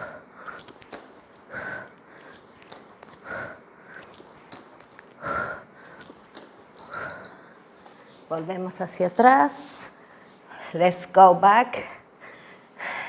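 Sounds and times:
woman breathing hard: 0.0s - 0.8s, 1.4s - 2.5s, 3.1s - 4.1s, 5.2s - 6.2s, 6.8s - 8.2s, 12.2s - 13.0s.

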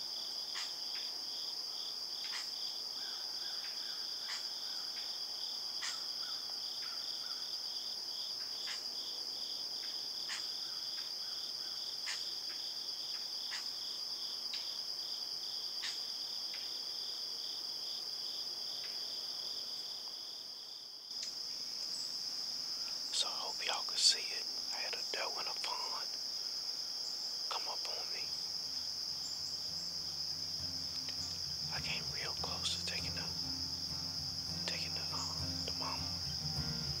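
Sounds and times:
crickets and insects chirping: 0.0s - 37.0s
pulsing insect trill: 21.3s - 37.0s.

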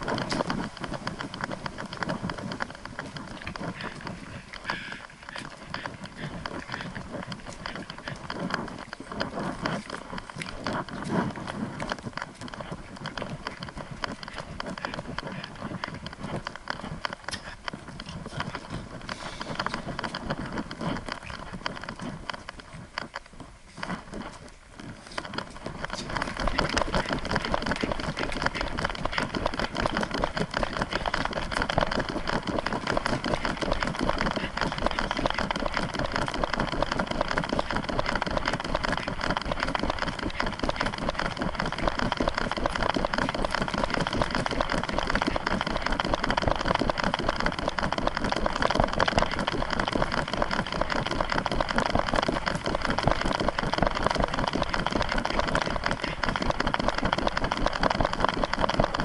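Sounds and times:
camera mount rattling and rubbing: 25.0s - 59.0s.

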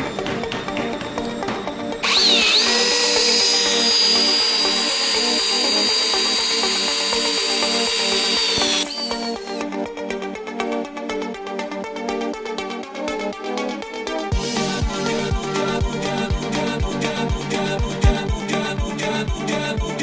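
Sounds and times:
power drill driving a screw: 1.2s - 9.6s.

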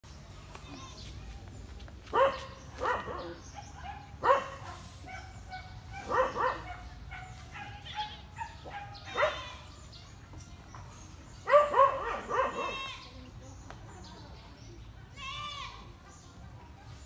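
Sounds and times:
dog barking: 2.1s - 9.6s, 11.4s - 12.8s.

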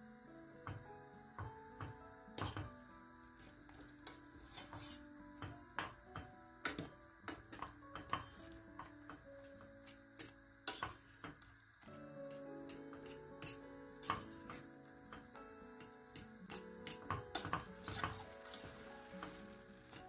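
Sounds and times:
soft background music: 0.0s - 20.0s
fork scraping a metal pot: 4.0s - 5.0s, 10.2s - 11.2s, 12.3s - 14.6s, 16.5s - 20.0s.

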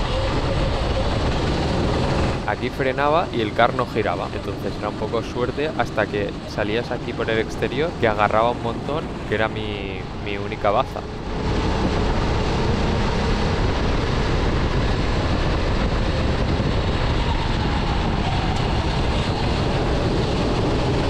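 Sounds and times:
kart engine under throttle: 0.0s - 5.0s, 11.0s - 21.0s
road noise: 0.0s - 21.0s
wind noise: 0.0s - 21.0s.

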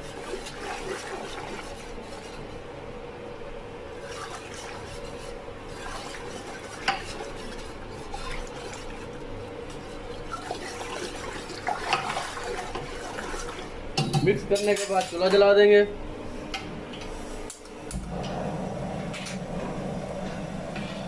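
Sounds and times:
whisk stirring batter: 0.0s - 2.7s, 3.8s - 15.4s
faint steady hum: 0.0s - 21.0s
whisk clinking against pot: 4.1s - 9.1s.

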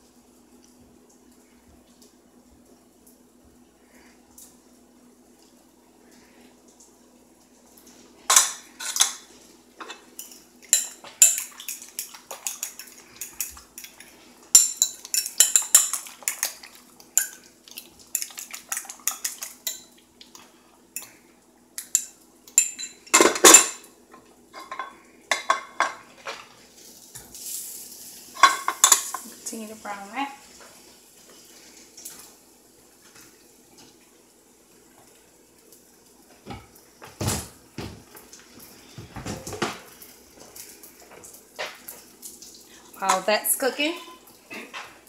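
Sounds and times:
cutlery clinking against glass bowl: 9.8s - 17.5s, 21.8s - 23.8s.

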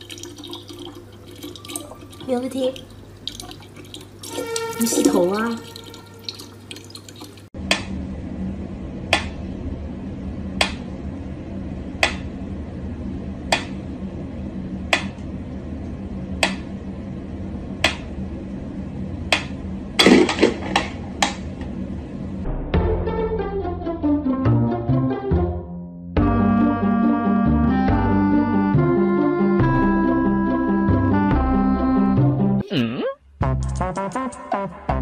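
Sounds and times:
steady low hum: 7.5s - 22.8s.

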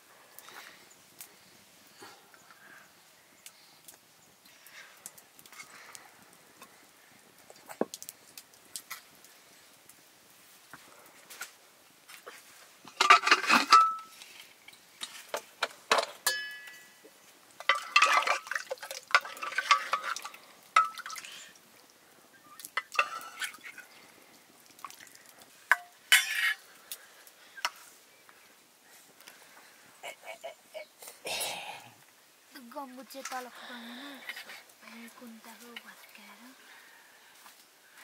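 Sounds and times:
metal kitchenware clinking and scraping: 12.9s - 14.1s, 17.6s - 21.3s, 22.9s - 23.6s, 25.7s - 26.6s.

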